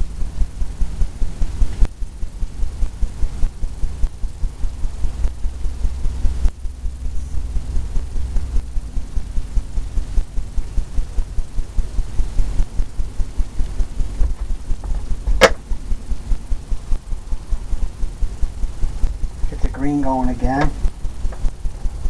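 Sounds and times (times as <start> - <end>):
low pulsing rumble: 0.0 - 22.0
sharp click: 13.6 - 15.6, 20.5 - 21.6.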